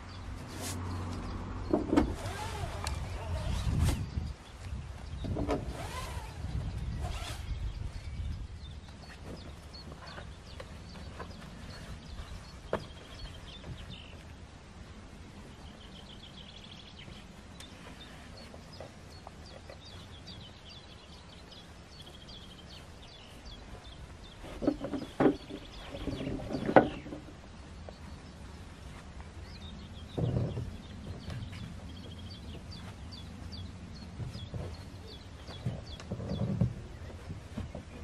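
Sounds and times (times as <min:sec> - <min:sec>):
small birds chirping: 0:00.0 - 0:38.0
canoe hull knocking and scraping: 0:01.6 - 0:02.2, 0:24.4 - 0:27.3, 0:30.1 - 0:32.7, 0:34.1 - 0:38.0.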